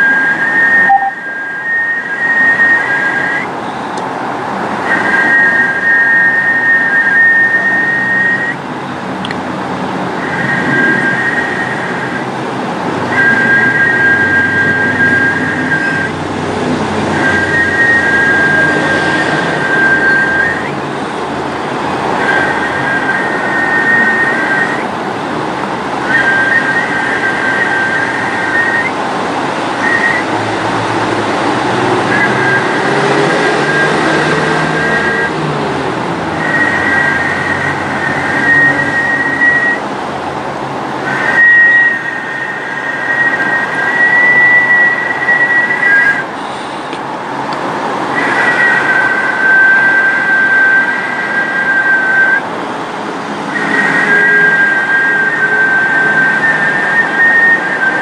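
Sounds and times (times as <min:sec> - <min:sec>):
two high-pitched tones: 0:00.6 - 0:01.6.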